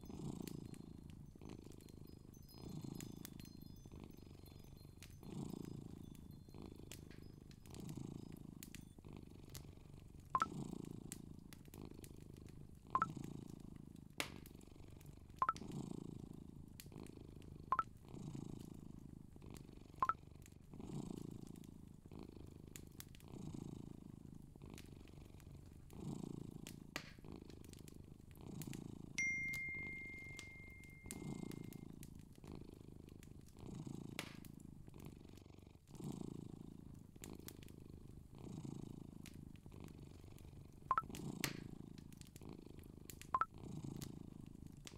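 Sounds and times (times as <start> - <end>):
ringing tone: 29.2 - 31.1.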